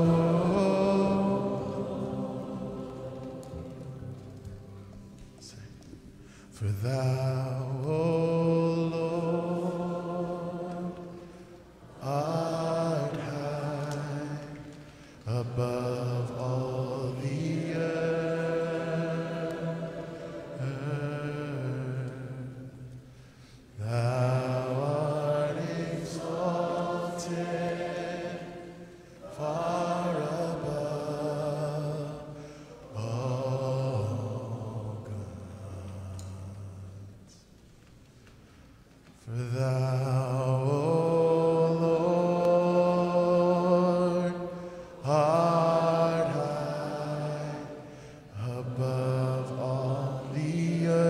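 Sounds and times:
man singing slow phrases: 0:00.0 - 0:03.1, 0:05.4 - 0:11.3, 0:11.9 - 0:19.6, 0:23.8 - 0:28.1, 0:39.2 - 0:51.0
quiet backing music: 0:00.0 - 0:51.0.

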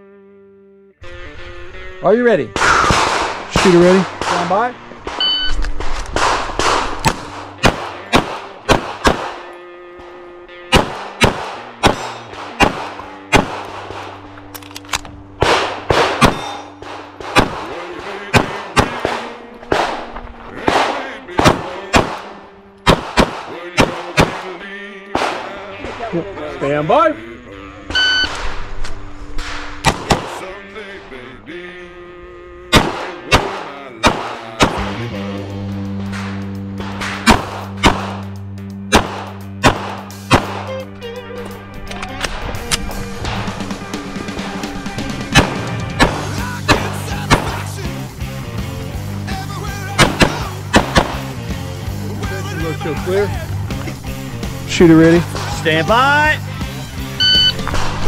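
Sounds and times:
pistol shots: 0:02.6 - 0:09.5, 0:10.7 - 0:14.5, 0:15.4 - 0:26.1, 0:29.4 - 0:30.5, 0:32.7 - 0:35.0, 0:36.0 - 0:40.8, 0:45.3 - 0:47.7, 0:50.0 - 0:51.3.

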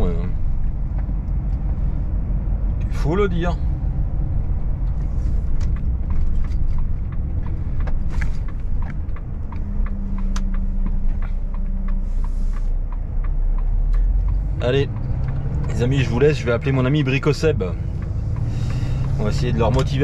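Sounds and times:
truck engine and road rumble: 0:00.0 - 0:20.0
cab rattles and ticks: 0:04.1 - 0:12.0.

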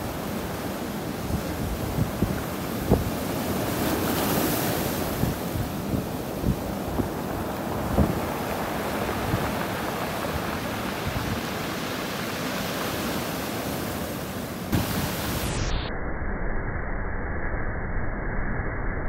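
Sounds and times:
sea surf washing ashore: 0:00.0 - 0:15.6
wind buffeting microphone: 0:01.1 - 0:12.2.

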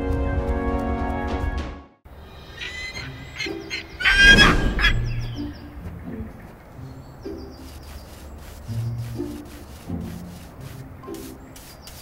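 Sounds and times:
soft background music: 0:00.0 - 0:12.0
honking calls: 0:02.4 - 0:06.7.

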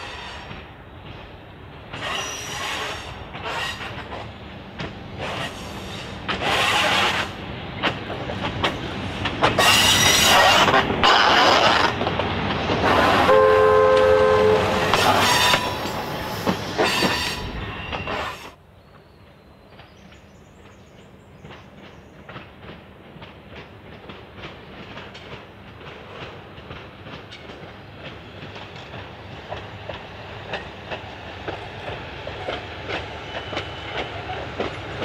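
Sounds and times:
railcar passing: 0:00.0 - 0:35.0
wheels clicking over rail joints: 0:00.5 - 0:13.2, 0:19.7 - 0:35.0
two-note train horn: 0:13.2 - 0:15.0.

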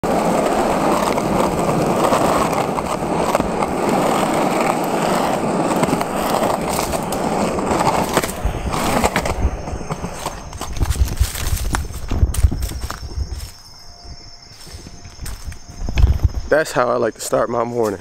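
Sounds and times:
wheels clicking over cracks: 0:00.0 - 0:13.6
skateboard wheels rolling on asphalt: 0:00.0 - 0:18.0.

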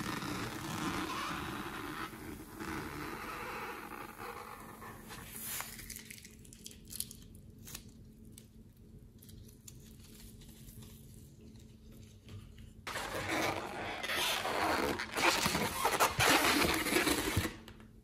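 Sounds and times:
balloon squishing in slime: 0:00.0 - 0:06.2, 0:12.9 - 0:17.7.

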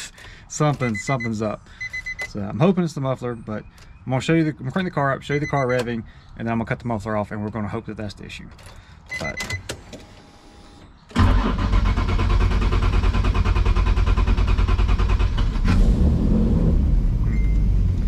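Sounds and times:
starter motor cranking: 0:11.2 - 0:15.6.

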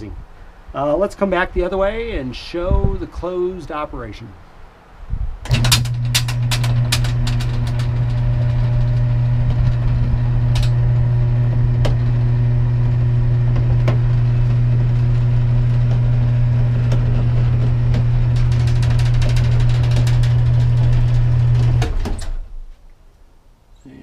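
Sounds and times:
electric motor humming: 0:05.5 - 0:22.4.

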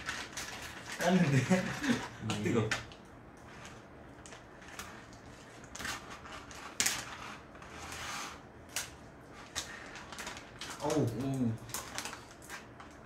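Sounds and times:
plastic bags crinkling: 0:00.0 - 0:02.9, 0:08.7 - 0:13.0.

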